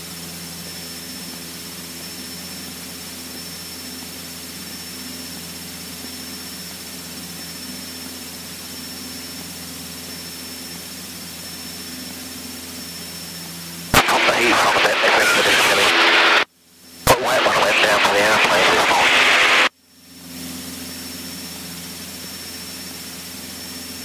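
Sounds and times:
faint high whine: 0:14.0 - 0:16.5, 0:17.1 - 0:19.7.

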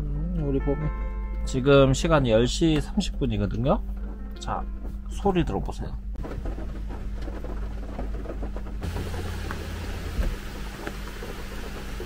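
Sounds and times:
heavy rain on car roof: 0:06.2 - 0:12.0.

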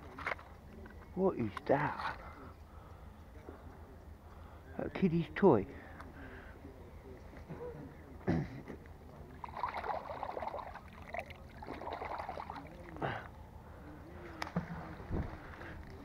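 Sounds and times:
water splashing and dribbling: 0:09.3 - 0:13.2.

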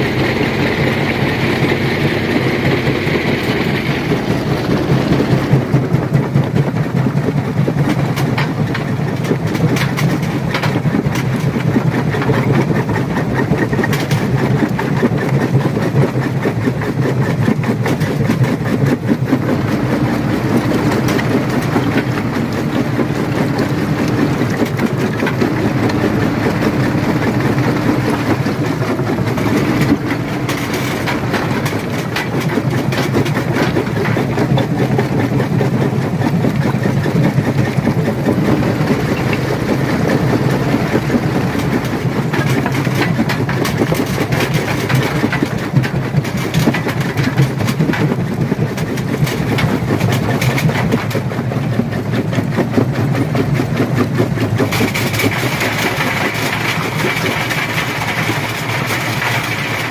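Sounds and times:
rock crusher machine hum: 0:00.0 - 0:59.9
rocks cracking and clattering: 0:17.2 - 0:59.9.

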